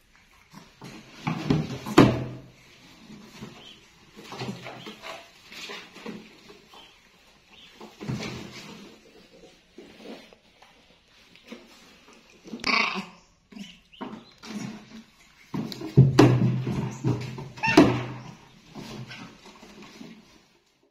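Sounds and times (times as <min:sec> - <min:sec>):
shrill monkey cry: 0:17.6 - 0:18.0
baby monkeys squeaking: 0:17.6 - 0:18.4.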